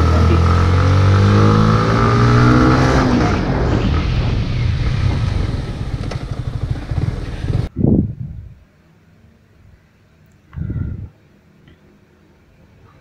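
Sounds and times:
motorcycle engine running: 0.0s - 7.7s
wind hiss: 1.5s - 8.6s.

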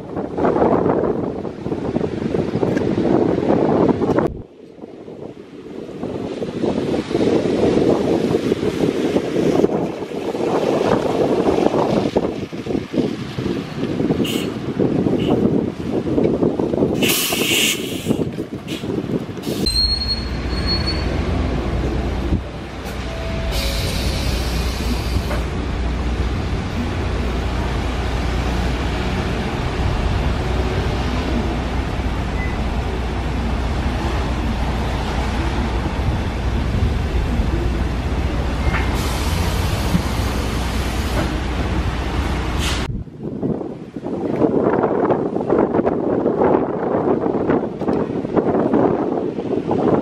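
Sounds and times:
vehicle rumble: 0.0s - 50.0s
wind noise on microphone: 0.0s - 50.0s
tyres hissing on wet road: 6.7s - 16.0s, 16.9s - 42.9s.

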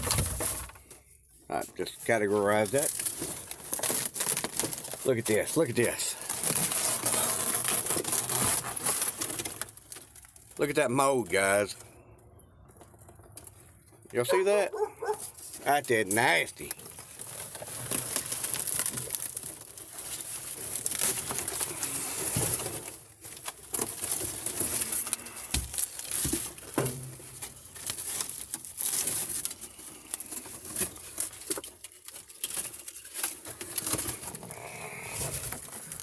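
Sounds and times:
panel fabric tearing: 6.4s - 9.3s.

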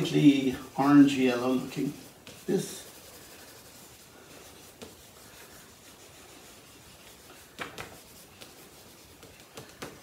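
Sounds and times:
crayon scribbling on paper: 0.8s - 10.0s
crayon tapping: 7.5s - 10.0s.

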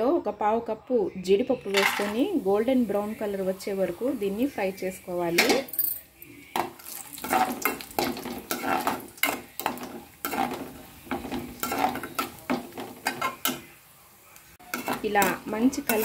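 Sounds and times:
nuts sizzling in oil: 1.6s - 16.0s
metal ladle scraping pan: 6.6s - 13.6s, 14.6s - 16.0s.

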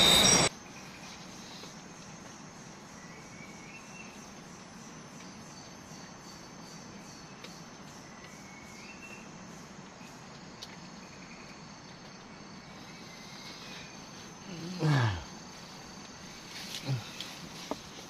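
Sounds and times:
insects droning: 0.0s - 18.0s
faint chirps: 2.9s - 18.0s.

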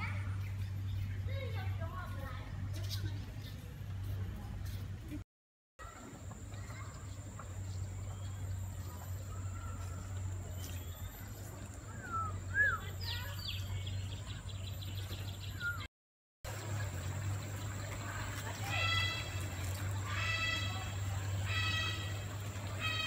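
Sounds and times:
bird chirps and whistles: 11.9s - 13.6s, 15.4s - 15.9s.

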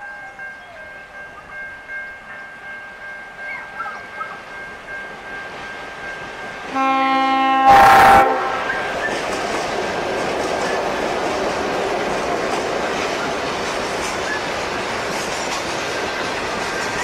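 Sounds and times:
train rumbling past: 0.0s - 17.0s
locomotive horn: 6.7s - 9.1s
wheels clicking over rail joints: 8.9s - 17.0s.

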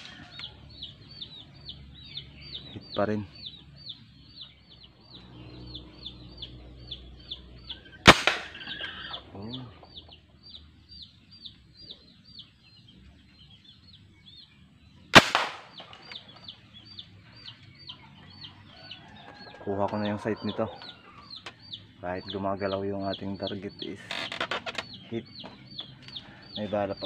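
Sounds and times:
steady high chirping: 0.0s - 27.0s
gas gun sharp pop: 8.1s - 8.6s, 15.2s - 15.8s.

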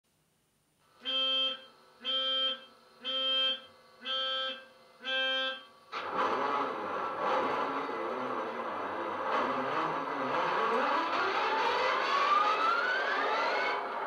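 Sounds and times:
electronic beeps: 1.0s - 5.7s
diesel engine starting up: 5.9s - 14.0s.

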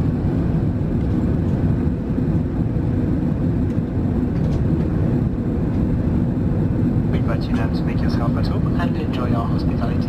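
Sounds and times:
airplane cabin engine roar: 0.0s - 10.0s.

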